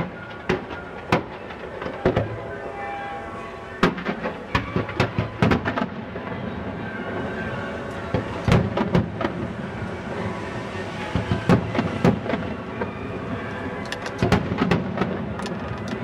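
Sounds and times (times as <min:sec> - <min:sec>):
distant fireworks bangs: 0:00.0 - 0:02.7, 0:03.8 - 0:16.0.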